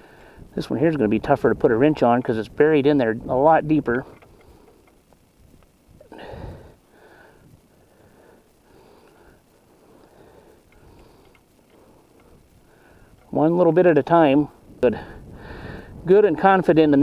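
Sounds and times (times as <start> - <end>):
man breathing while straining: 0.0 - 0.5, 6.0 - 13.3, 14.9 - 16.0.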